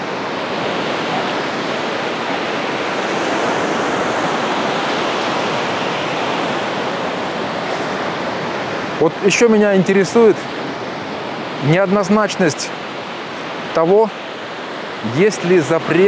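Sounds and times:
surf breaking on beach: 0.0s - 16.0s.

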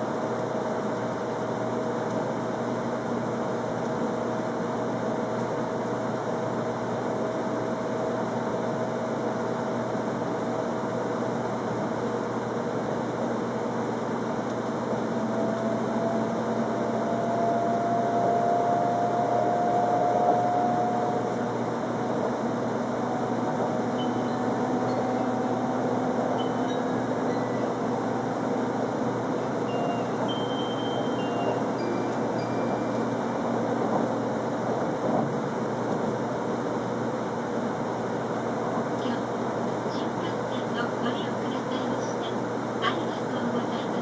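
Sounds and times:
train running noise: 0.0s - 44.0s
traction motor whine: 13.6s - 37.0s.

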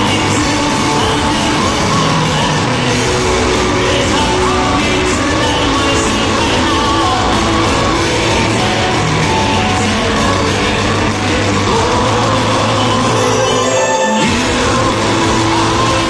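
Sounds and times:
man singing lead: 0.0s - 16.0s
metal band playing live: 0.0s - 16.0s.

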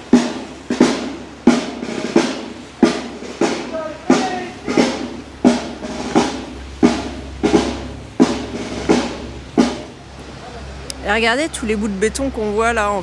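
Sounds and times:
drum beaten at marching pace: 0.0s - 10.4s.

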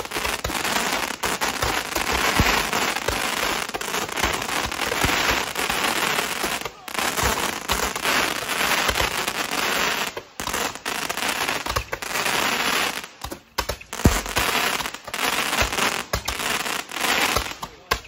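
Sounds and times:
fireworks hissing crackle: 0.0s - 18.0s.

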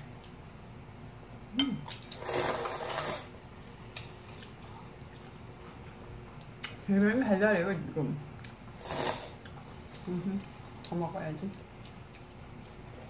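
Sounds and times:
person slurping noodles: 2.1s - 3.4s, 8.8s - 9.4s.

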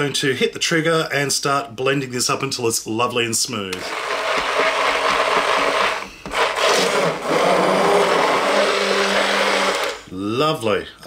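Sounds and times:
stick blender running: 3.8s - 10.1s.

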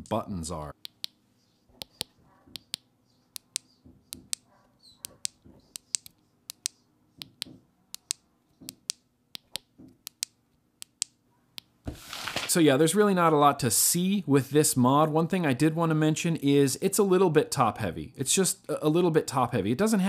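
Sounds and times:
vape buttons clicking: 1.8s - 2.8s, 5.2s - 11.1s.

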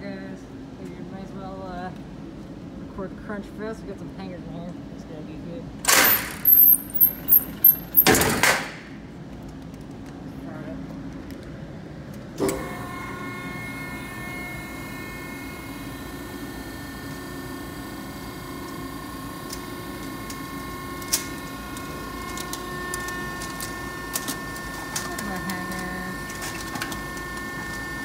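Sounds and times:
hydraulic motor clunk: 5.8s - 8.8s, 12.4s - 13.0s
hydraulic pump whine and hum: 5.8s - 9.1s, 11.6s - 28.0s.

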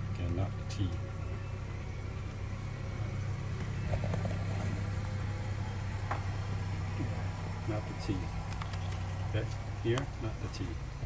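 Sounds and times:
low mechanical hum: 0.0s - 11.0s
faint clicks: 8.4s - 9.1s.

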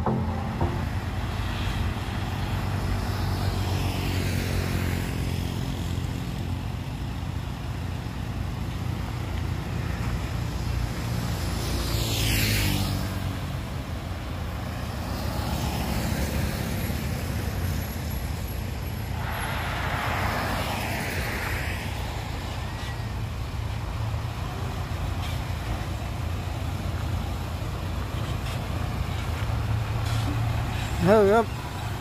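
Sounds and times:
diesel truck engine rumbling: 0.0s - 3.8s
vehicle passing: 19.0s - 22.9s.

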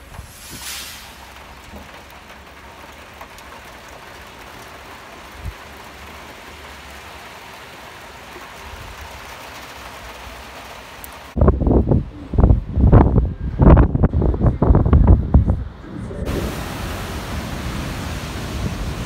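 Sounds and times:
rough sea breaking on shore: 16.2s - 19.0s.

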